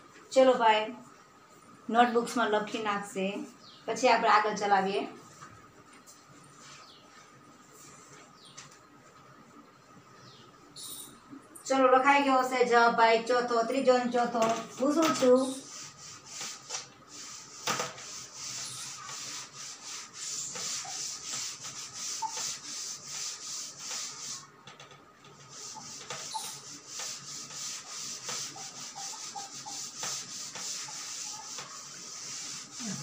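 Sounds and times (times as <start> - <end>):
duster rubbing on chalkboard: 14.4 - 24.6, 25.3 - 33.0.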